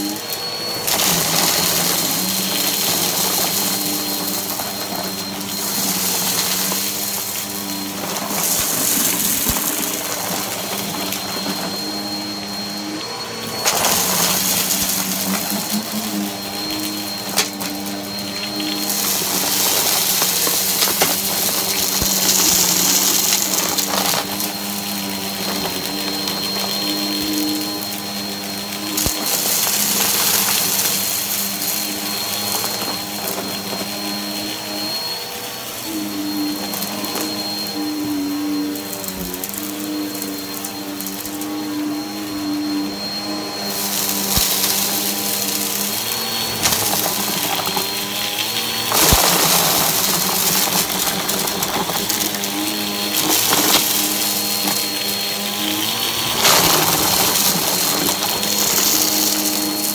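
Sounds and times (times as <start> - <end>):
vacuum cleaner on carpet: 0.0 - 59.9
grit clicking in vacuum: 44.1 - 55.1.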